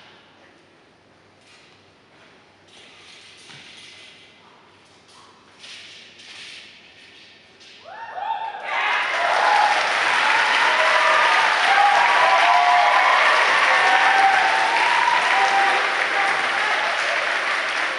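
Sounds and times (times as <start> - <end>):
shouts and whoops: 7.8 - 17.9
audience applauding: 8.7 - 17.9.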